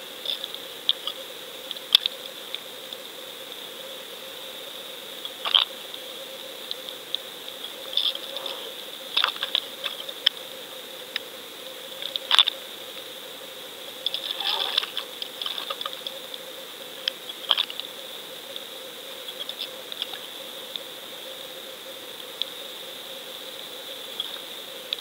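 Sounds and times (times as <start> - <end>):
sharp clicks and crackles: 0.2 - 3.0, 5.2 - 5.7, 9.1 - 10.4, 12.0 - 13.1.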